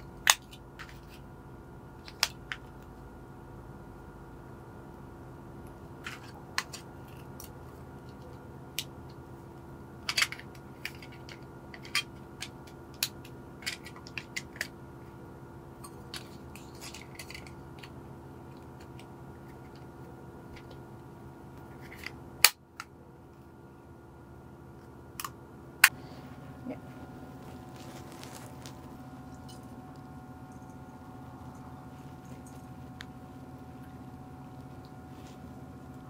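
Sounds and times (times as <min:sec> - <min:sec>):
low hum: 0:14.6 - 0:36.0.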